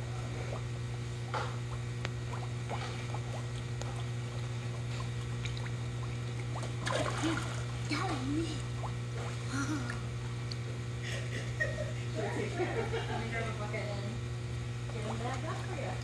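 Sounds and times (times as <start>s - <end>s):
steady low hum: 0.0s - 16.0s
fish smacking at water surface: 1.3s - 7.8s.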